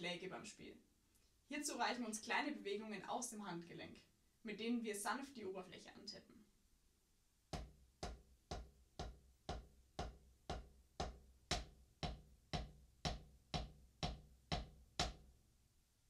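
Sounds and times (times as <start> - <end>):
drum sticks tapping practice pad: 7.5 - 15.3.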